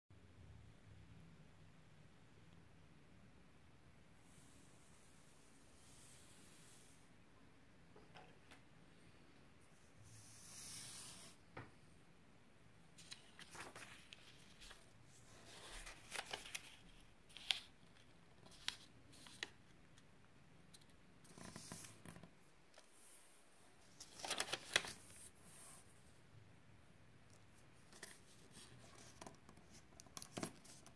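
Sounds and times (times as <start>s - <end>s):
paper fold snaps: 13.0s - 14.8s, 15.5s - 17.7s, 24.0s - 25.0s
paper rustling: 13.0s - 19.6s, 23.8s - 25.3s.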